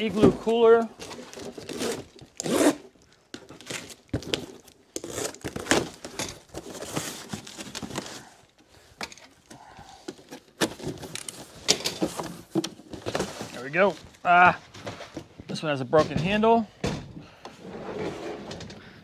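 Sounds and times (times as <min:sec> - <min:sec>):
packing tape tearing: 0:00.9 - 0:08.6.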